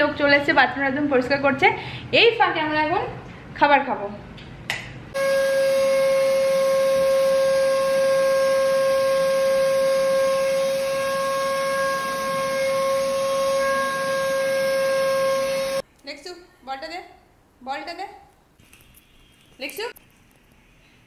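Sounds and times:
vacuum cleaner whining: 5.2 - 15.8.

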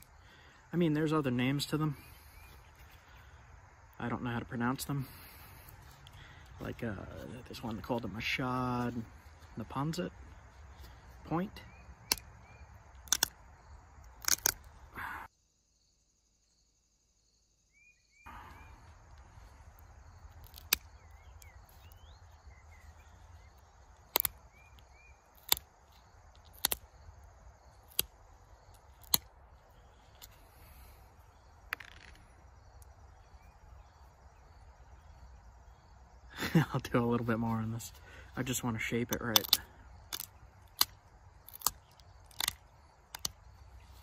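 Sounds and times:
faint bird chirps: 0.0 - 13.0, 14.9 - 26.2, 29.6 - 40.5
flint flakes snapping clicks: 12.0 - 12.3, 13.0 - 13.4, 14.0 - 14.7, 20.3 - 21.9, 23.9 - 27.0, 27.7 - 29.3, 39.1 - 43.4.

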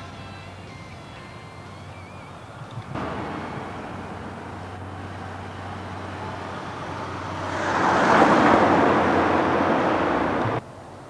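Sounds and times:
background hiss: 0.0 - 11.0
road vehicle passing: 2.4 - 10.6
low hum: 3.0 - 10.6.

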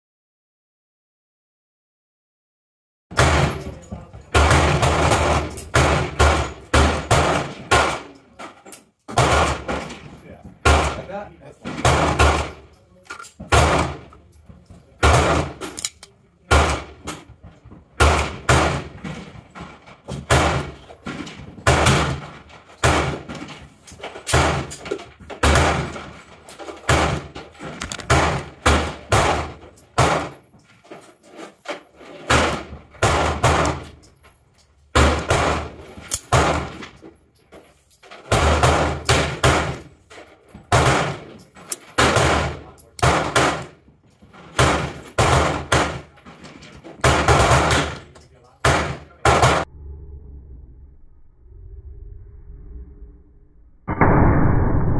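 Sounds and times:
gunshots with echo: 3.1 - 8.2, 9.1 - 9.9, 10.6 - 12.7, 13.5 - 14.1, 15.0 - 15.7, 16.4 - 17.1, 18.0 - 19.2, 20.2 - 20.9, 21.6 - 23.4, 24.3 - 24.8, 25.4 - 26.2, 26.8 - 30.4, 32.2 - 34.0, 34.9 - 36.8, 38.3 - 39.9, 40.7 - 41.3, 42.0 - 43.8, 44.5 - 46.1, 47.0 - 49.7.

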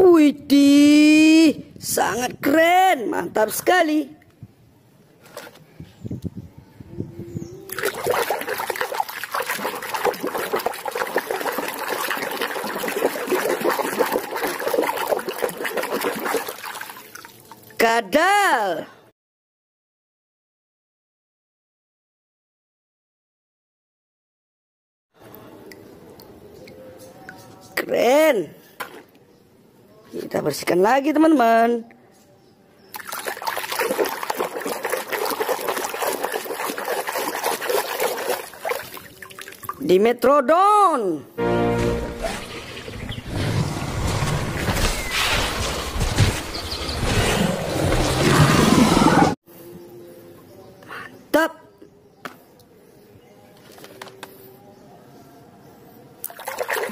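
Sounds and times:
hand scrubbing in basin of water: 7.7 - 17.6, 32.9 - 39.8, 56.3 - 56.9
water sloshing and splashing: 7.7 - 17.8, 32.9 - 39.8, 56.2 - 56.9.

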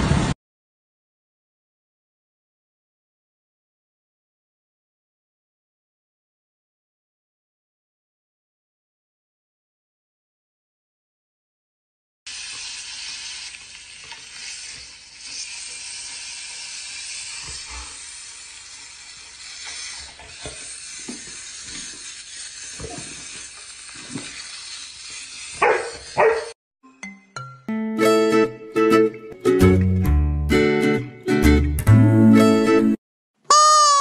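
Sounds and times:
steady hiss: 12.3 - 26.2
dog barking: 25.6 - 26.6.

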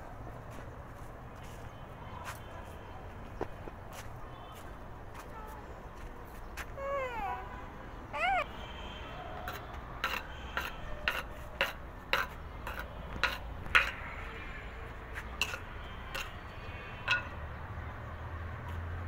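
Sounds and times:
rod tapping on concrete: 9.5 - 14.0, 15.4 - 16.4, 17.0 - 17.4.

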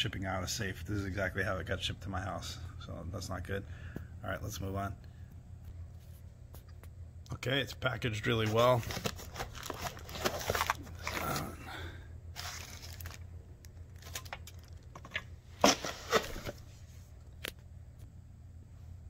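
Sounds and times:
plastic wrapping crinkling: 8.4 - 11.4, 12.4 - 14.9.

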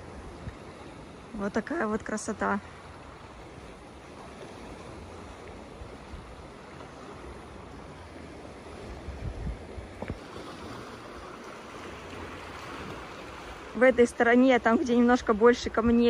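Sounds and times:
surf washing on stony shore: 0.0 - 16.0
wind bumps on microphone: 8.9 - 10.2.

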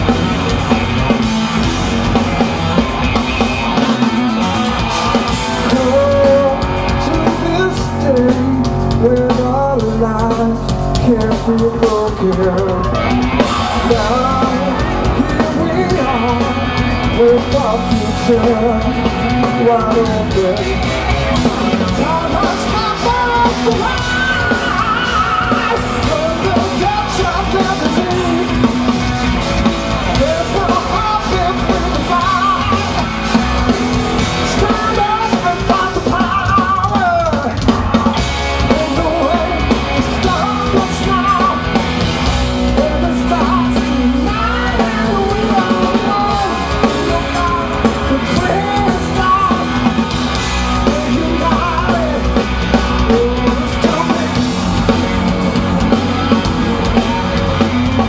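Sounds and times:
electric guitar lead melody: 0.0 - 36.6
rock band playing live: 0.0 - 58.0.

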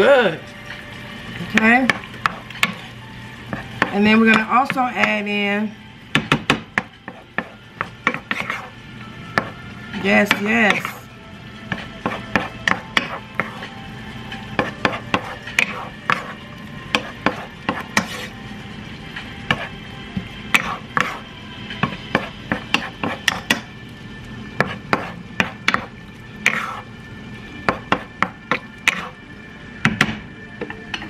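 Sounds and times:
low sizzle: 0.0 - 31.0
wooden spoon scraping a pan: 7.0 - 8.8, 11.7 - 13.8, 14.6 - 18.4, 19.5 - 19.8, 20.5 - 21.2, 21.8 - 23.6, 24.6 - 26.9, 28.0 - 29.2.

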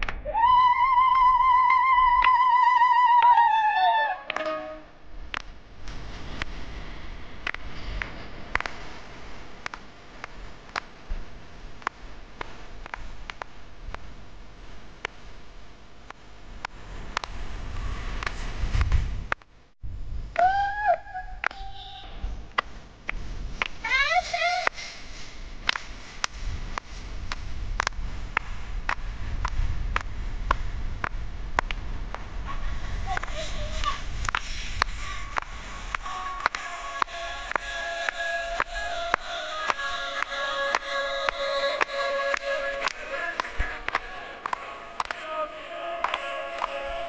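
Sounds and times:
low rumble: 0.0 - 47.0
hand claps keeping a beat: 7.4 - 8.8, 25.6 - 26.9, 27.8 - 32.2, 34.2 - 45.3, 46.0 - 46.9.

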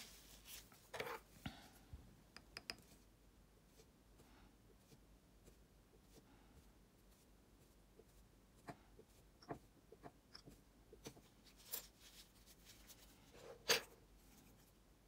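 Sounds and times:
faint taps of dotting tool: 2.3 - 3.0.

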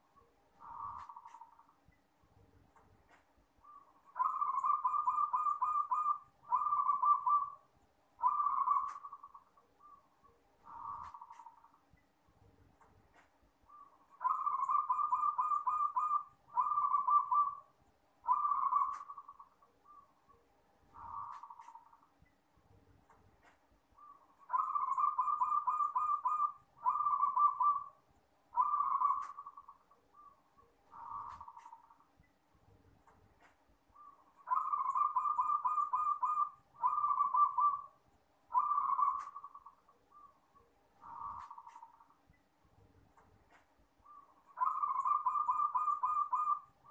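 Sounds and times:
dove cooing: 0.6 - 1.6, 3.7 - 7.6, 8.2 - 10.0, 10.7 - 11.6, 13.7 - 20.0, 21.0 - 22.0, 24.0 - 28.0, 28.6 - 30.3, 30.9 - 31.9, 34.0 - 37.9, 38.5 - 40.3, 41.0 - 41.9, 44.1 - 46.9.

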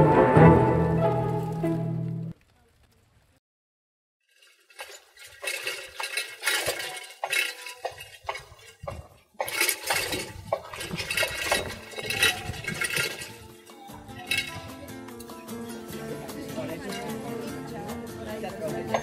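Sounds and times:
glass and metal clinking: 4.3 - 15.4, 16.3 - 19.0.

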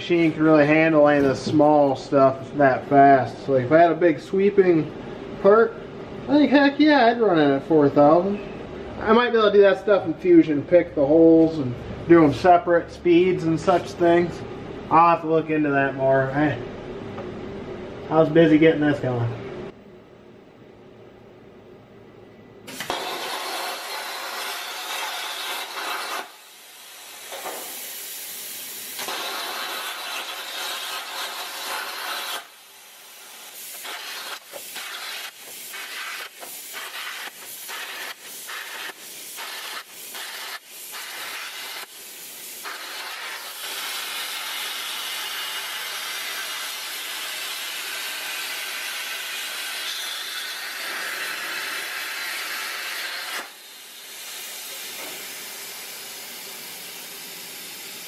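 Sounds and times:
plasma cutter hissing: 22.7 - 58.0.

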